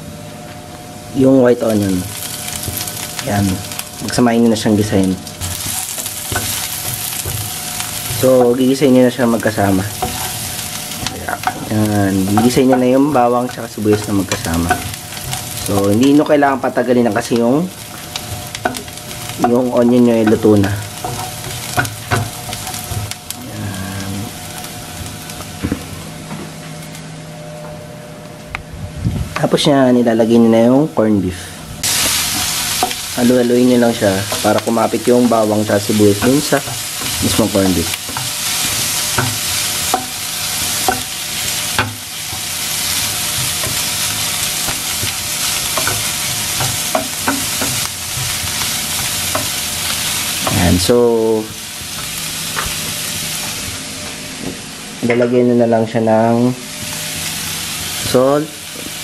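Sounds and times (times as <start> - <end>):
onion and garlic sizzling in a pan: 0.9 - 27.0, 29.3 - 59.0
spatula stirring and scraping: 5.2 - 23.5, 31.8 - 50.8.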